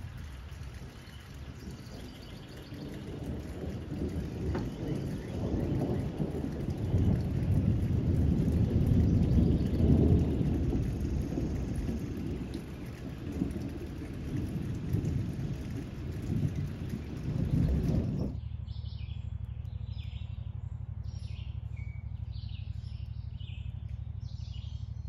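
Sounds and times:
low rolling thunder: 0.0s - 18.4s
rain falling: 0.0s - 18.4s.

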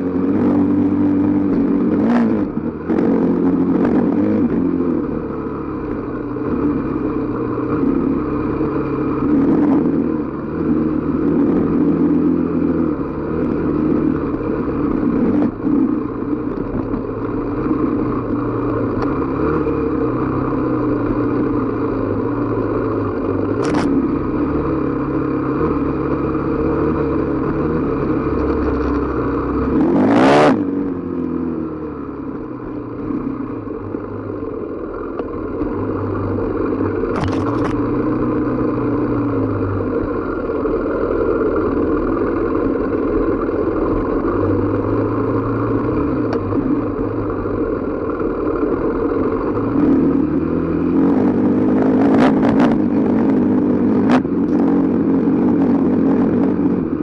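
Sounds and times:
dirt bike engine revving: 23.6s - 30.7s.

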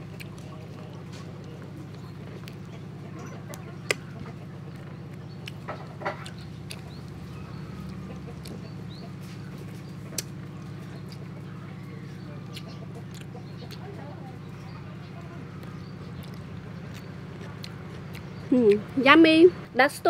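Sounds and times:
steady low hum: 0.0s - 20.0s
lip smacks and clicks: 0.2s - 0.6s, 3.5s - 7.2s, 7.8s - 8.7s, 10.1s - 11.3s, 12.4s - 13.9s, 15.6s - 19.0s.

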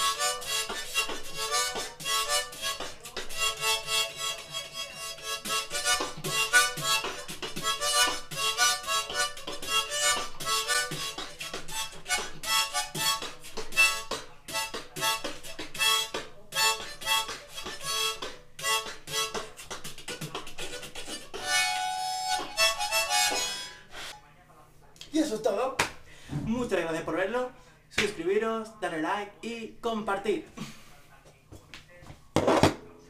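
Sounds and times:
harmonica chords: 0.0s - 24.2s.

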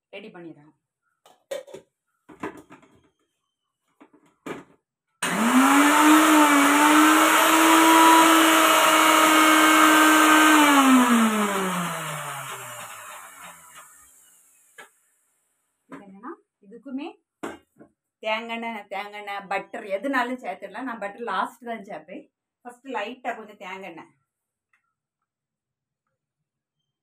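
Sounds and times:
electric mixer grinder running: 5.2s - 14.4s.

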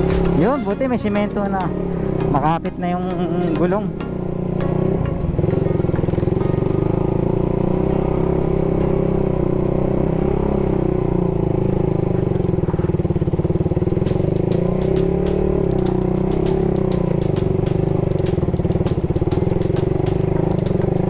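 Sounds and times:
motorcycle engine under load: 1.2s - 21.0s.

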